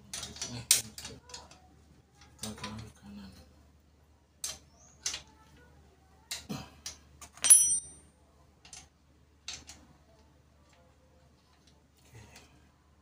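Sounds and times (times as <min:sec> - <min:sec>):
ringing metal clank: 0:07.4 - 0:08.0.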